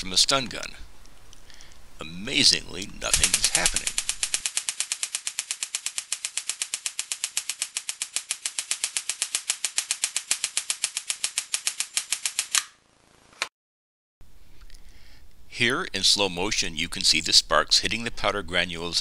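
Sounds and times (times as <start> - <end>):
stun gun electric snaps: 3.0 - 13.5.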